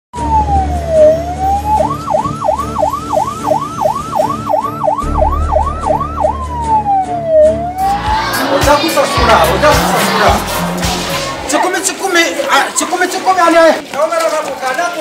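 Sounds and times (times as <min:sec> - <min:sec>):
siren wailing and yelping: 0:00.2 - 0:07.9.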